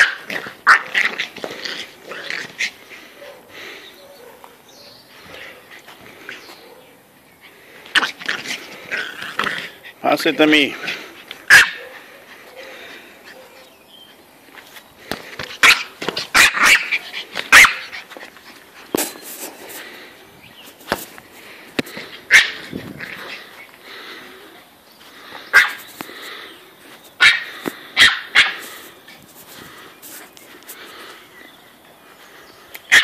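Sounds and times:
small dog barking sharply: 0.0 - 1.1, 11.5 - 11.9, 15.6 - 16.9, 17.5 - 17.9, 22.3 - 22.6, 25.5 - 25.8, 27.2 - 28.6.

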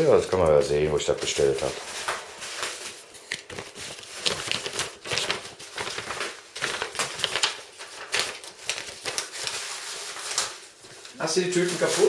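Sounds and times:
paper and packaging crinkling: 0.0 - 12.0.

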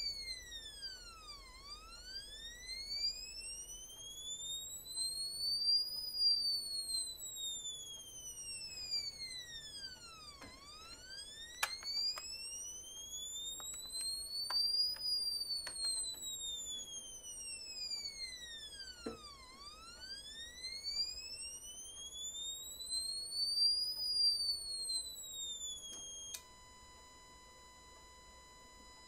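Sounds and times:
sine tone sweeping up and down: 0.0 - 29.0.

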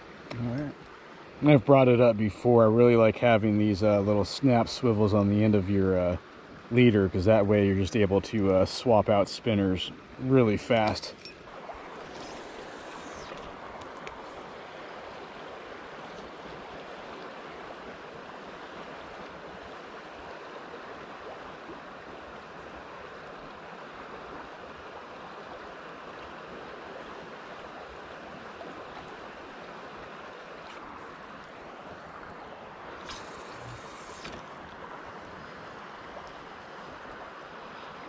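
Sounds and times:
river flowing over rocks: 3.7 - 38.0
brief hiss: 12.0 - 13.5, 33.0 - 34.5.

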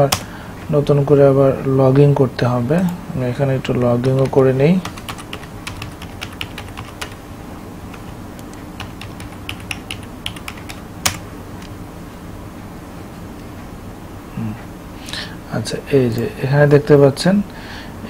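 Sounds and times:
computer keyboard typing: 0.0 - 0.3, 3.6 - 7.2, 7.9 - 11.7.

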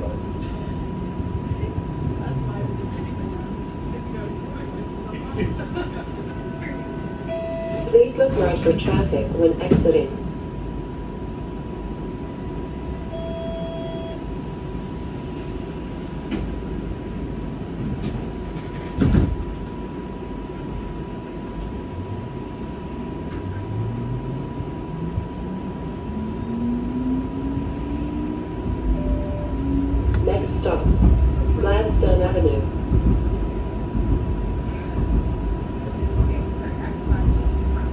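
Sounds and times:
streetcar low rumble: 0.0 - 37.9
short beep: 7.2 - 7.9, 13.1 - 14.2, 28.9 - 29.6.

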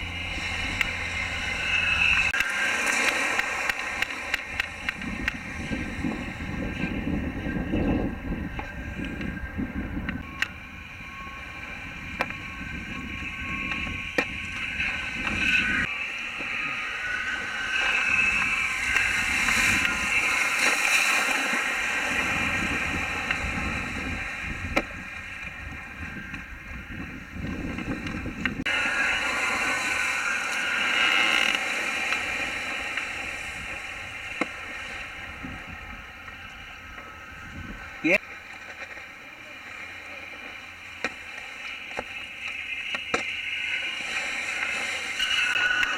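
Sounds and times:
wind on microphone: 0.0 - 38.2
wakeboard carving spray hiss: 28.7 - 35.0, 40.9 - 45.9.

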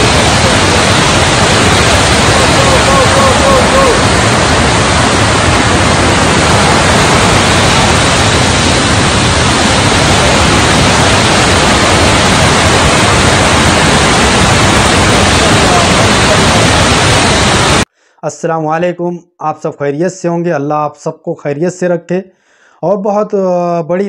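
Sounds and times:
floodwater rushing: 0.0 - 17.8.

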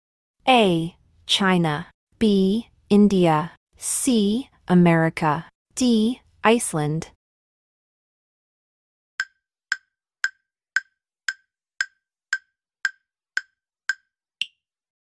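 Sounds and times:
countdown timer ticks: 9.2 - 14.6.

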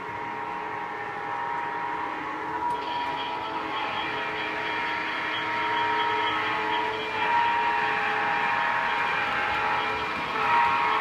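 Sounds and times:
model train running: 0.0 - 11.0.

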